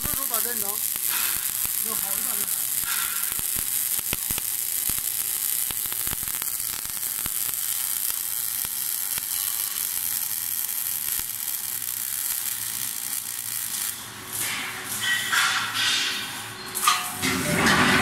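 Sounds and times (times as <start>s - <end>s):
sharp pops of spatter: 0.0s - 9.3s
arc welding crackling sizzle: 0.0s - 18.0s.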